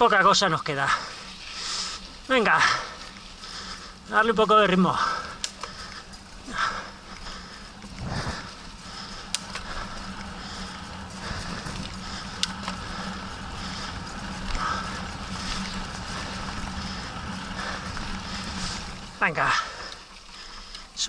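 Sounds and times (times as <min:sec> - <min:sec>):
bike tyres rolling on dirt: 0:00.0 - 0:21.0
rider breathing: 0:00.8 - 0:21.0
sharp clicks from bike: 0:05.0 - 0:19.0.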